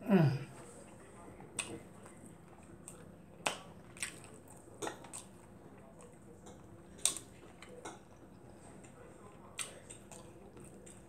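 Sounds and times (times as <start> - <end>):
person chewing with wet smacks: 0.5 - 11.0.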